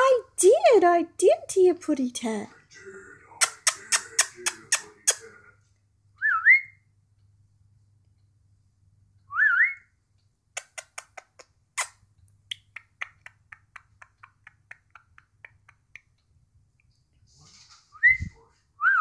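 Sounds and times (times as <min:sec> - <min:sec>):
budgerigar clicking chirps: 0:10.6 - 0:16.3.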